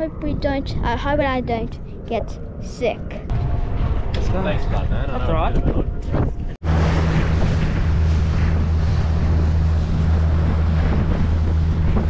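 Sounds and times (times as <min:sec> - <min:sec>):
wind on microphone: 0:00.0 - 0:12.0
outboard motor droning: 0:06.6 - 0:12.0
rush of boat wake: 0:06.6 - 0:12.0.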